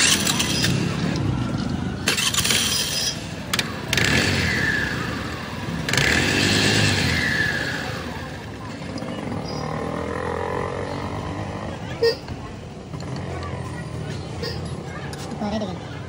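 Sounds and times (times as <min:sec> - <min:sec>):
scooter engine revving in bursts: 0:00.0 - 0:12.1.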